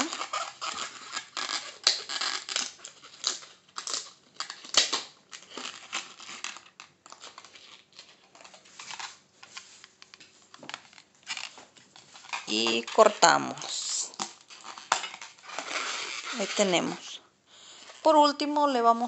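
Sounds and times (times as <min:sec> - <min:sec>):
rubber balloons rubbing and scraping: 0:00.0 - 0:03.1, 0:11.3 - 0:17.2.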